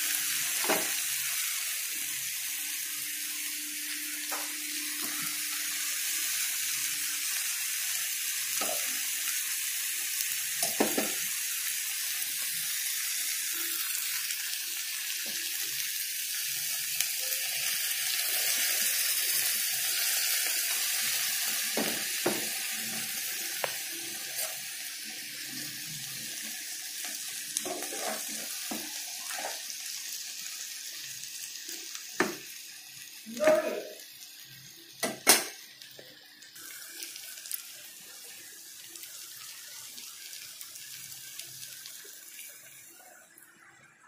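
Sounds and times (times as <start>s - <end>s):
food sizzling in a hot pan: 0.0s - 44.0s
spoon scraping against a pan: 27.6s - 29.7s.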